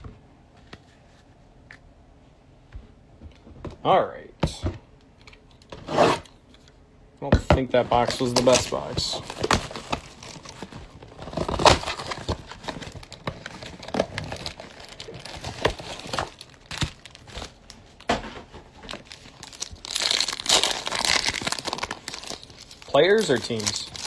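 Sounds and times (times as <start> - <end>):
foil packs crinkling: 7.8 - 18.1, 18.8 - 24.0
foil wrapper tearing: 11.4 - 17.6, 19.0 - 24.0.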